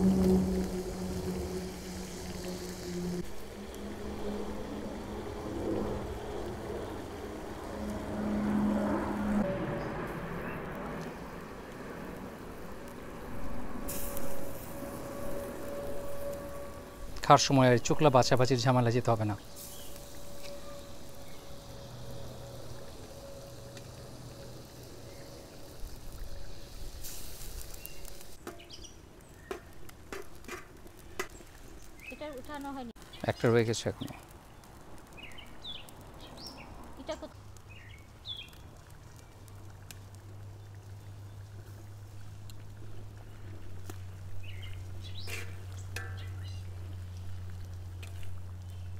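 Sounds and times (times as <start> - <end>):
steady low hum: 0.0 - 27.1
oil sizzling and bubbling in wok: 0.0 - 48.9
metal spatula scraping wok: 45.2 - 46.2.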